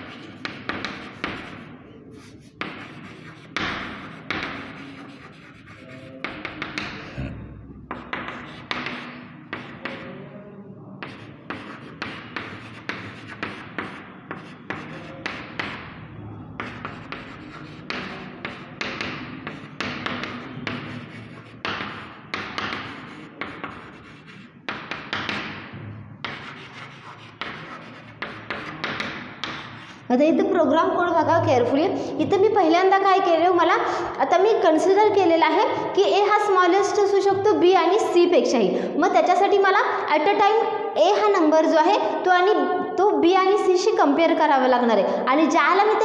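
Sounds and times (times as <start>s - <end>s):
chalk scratching on a blackboard: 0.0s - 7.2s, 7.9s - 10.2s, 11.0s - 15.9s, 16.5s - 30.1s.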